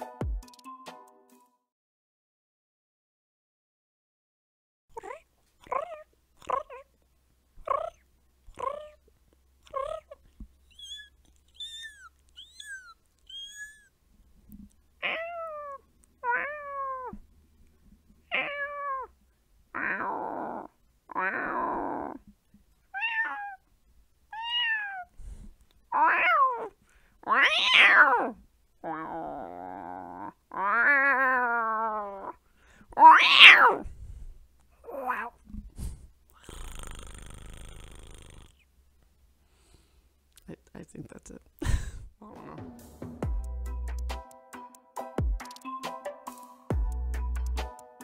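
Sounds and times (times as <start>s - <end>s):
raspy cries: 10.7s - 14.0s.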